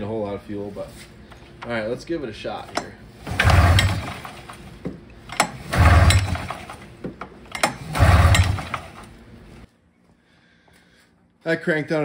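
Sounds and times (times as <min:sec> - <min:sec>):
engine cranking with sharp clicks: 0:02.6 - 0:09.2
recoil starter rope pulls: 0:02.6 - 0:09.2.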